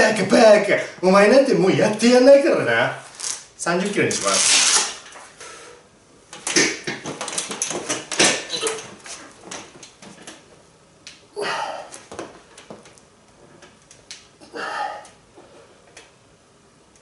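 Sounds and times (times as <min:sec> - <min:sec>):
person breathing: 0:05.4 - 0:05.9
grunt of effort: 0:11.4 - 0:11.9.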